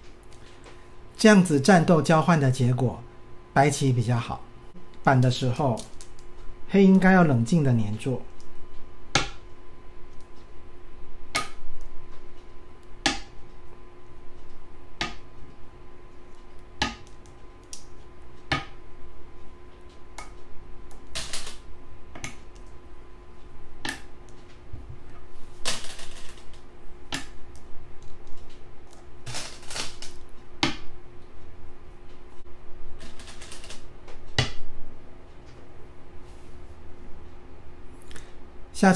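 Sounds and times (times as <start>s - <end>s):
faint steady hum: 0.0s - 38.9s
game stones clacking on board: 25.6s - 26.6s, 33.0s - 33.8s.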